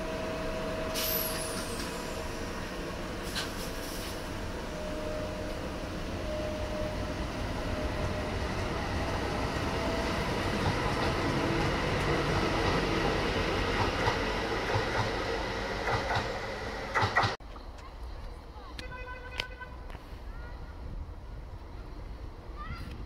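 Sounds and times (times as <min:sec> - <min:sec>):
electric train rumbling past: 0:00.0 - 0:17.4.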